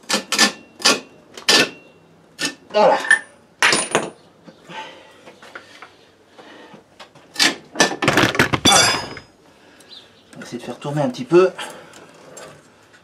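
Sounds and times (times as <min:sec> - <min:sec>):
metal hand tools clattering: 0:07.8 - 0:09.3.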